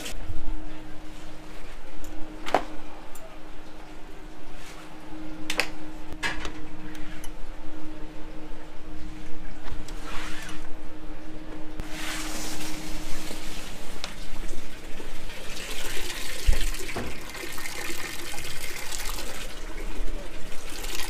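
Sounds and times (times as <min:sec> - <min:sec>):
washing machine filling with water: 0:11.8 - 0:21.0.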